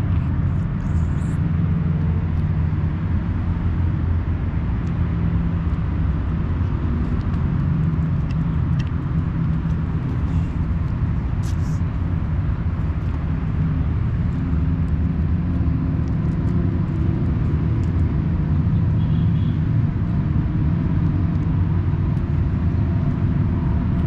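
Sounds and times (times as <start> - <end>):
kitten chewing dry food: 6.7 - 18.2.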